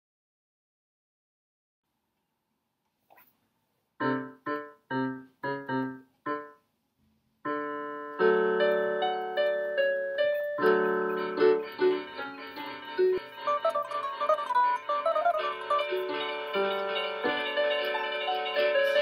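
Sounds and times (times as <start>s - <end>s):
electronic keyboard piano chords: 4.0s - 6.6s, 7.4s - 19.0s.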